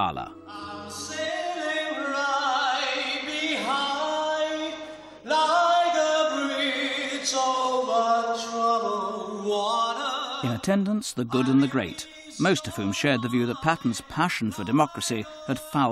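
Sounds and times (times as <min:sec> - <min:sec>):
man singing with vibrato: 0:00.0 - 0:15.9.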